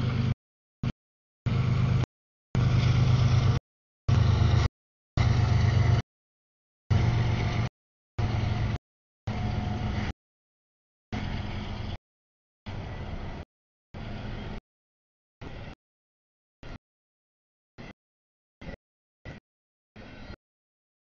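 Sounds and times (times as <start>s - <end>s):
diesel locomotive engine drone: 0.0s - 6.0s, 6.9s - 10.2s, 11.1s - 12.0s, 12.7s - 14.6s, 15.4s - 15.8s, 17.8s - 18.0s, 18.6s - 19.4s, 20.0s - 20.4s.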